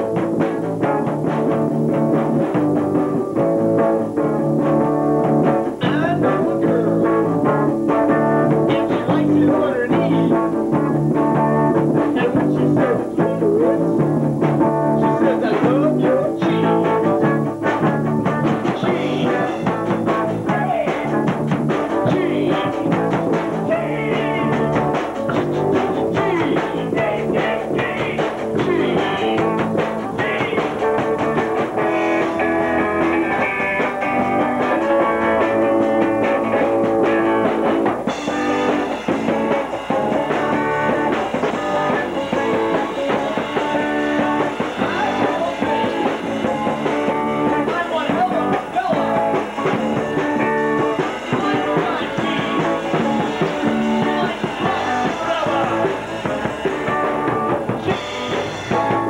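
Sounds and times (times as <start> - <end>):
drum kit: 0.0 - 59.0
electric guitar: 0.0 - 59.0.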